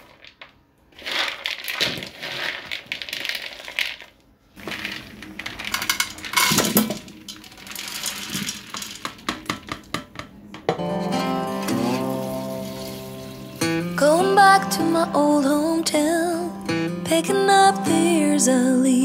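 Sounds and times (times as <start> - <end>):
maize kernels clattering into bowl: 0.0 - 10.0, 11.9 - 13.7
kernels tipped into pot: 0.0 - 10.8.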